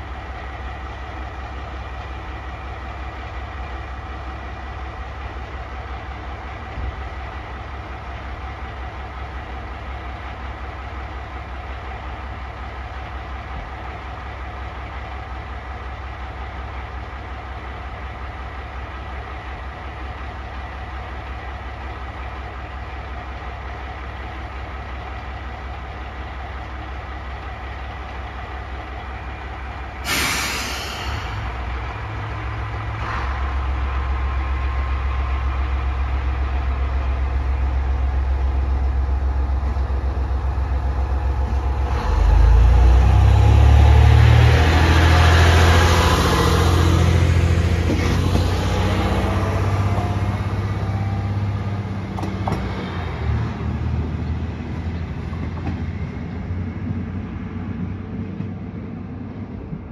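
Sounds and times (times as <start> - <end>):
diesel railcar idling hum: 0.0 - 59.9
railcar engine speeding up: 0.0 - 59.9
air brakes hissing: 30.0 - 31.6.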